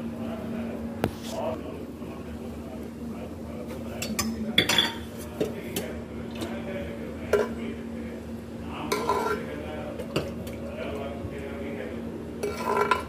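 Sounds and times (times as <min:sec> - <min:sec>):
steady low hum: 0:00.0 - 0:13.0
metal spoon scraping cooking pot: 0:08.9 - 0:09.4, 0:12.4 - 0:13.0.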